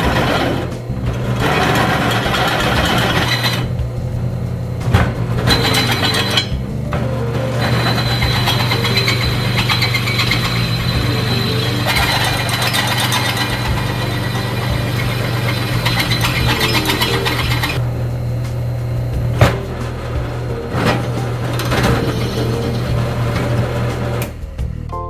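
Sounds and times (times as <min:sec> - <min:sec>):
drill bit cutting steel: 0:00.0 - 0:03.8, 0:05.5 - 0:06.6, 0:07.5 - 0:17.8
drill press motor humming: 0:00.0 - 0:24.4.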